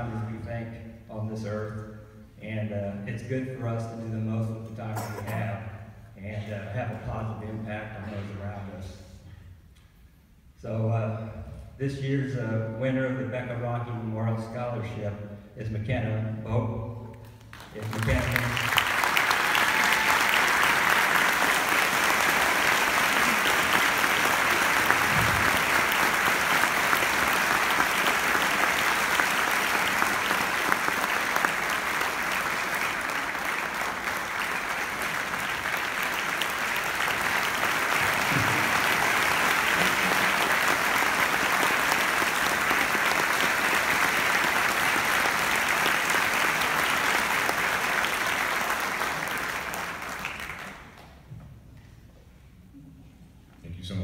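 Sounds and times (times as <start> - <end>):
audience applauding: 17.5 - 51.2.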